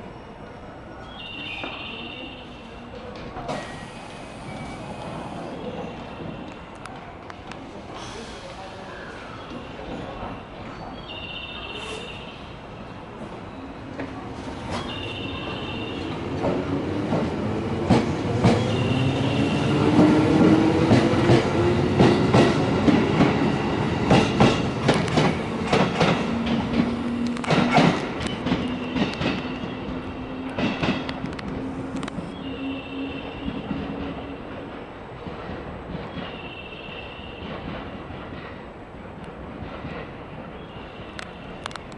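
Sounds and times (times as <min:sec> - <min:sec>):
wheels clacking over rail joints: 0:20.0 - 0:29.8.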